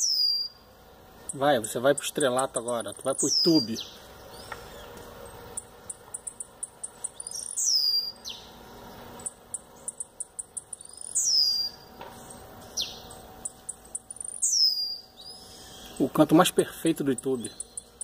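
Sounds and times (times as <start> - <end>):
bird singing: 0.0 - 18.0.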